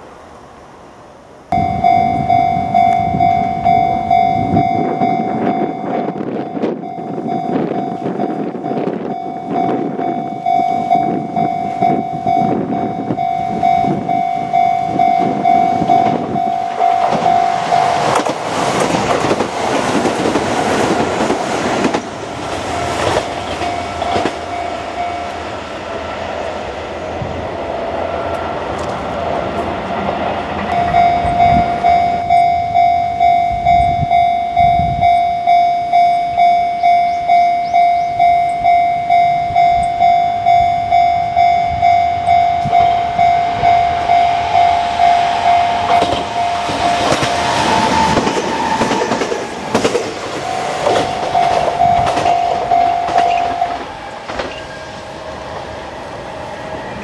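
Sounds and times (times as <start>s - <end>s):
train running noise: 0.0s - 57.0s
level crossing bell ringing: 1.5s - 18.2s, 22.7s - 25.5s, 30.7s - 47.5s, 50.4s - 54.7s
train wheels clicking on rail joints: 1.8s - 26.5s, 27.6s - 57.0s.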